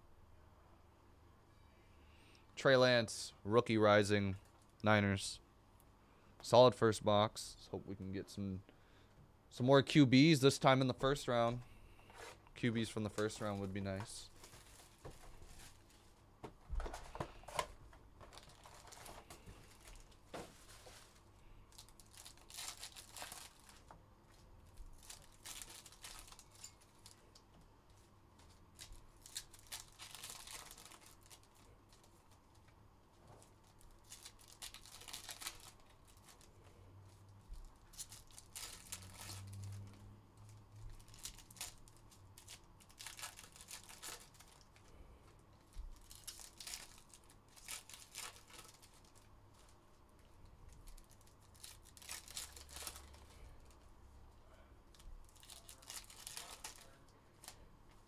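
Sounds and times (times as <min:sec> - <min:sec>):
card wrappers torn and crinkled: 0:17.0 - 0:24.0, 0:24.7 - 0:27.4, 0:28.7 - 0:32.4, 0:33.6 - 0:36.5, 0:37.8 - 0:39.9, 0:40.5 - 0:44.8, 0:45.9 - 0:49.8, 0:50.7 - 0:53.5, 0:54.9 - 0:57.6.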